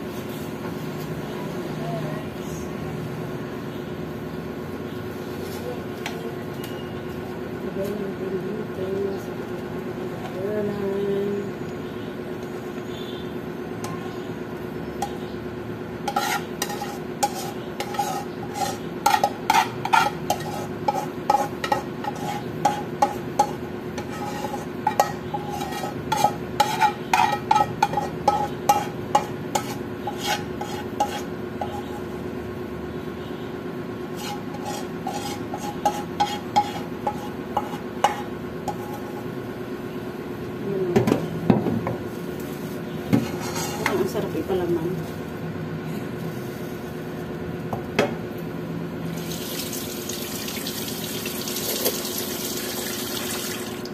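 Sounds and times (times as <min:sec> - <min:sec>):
metal utensil scraping a wok: 0:16.0 - 0:32.1, 0:34.1 - 0:39.3, 0:43.2 - 0:44.4.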